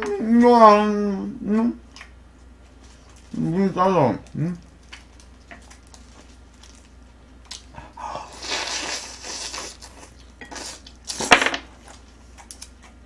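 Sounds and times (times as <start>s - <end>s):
slurping and chewing: 4.8s - 11.2s.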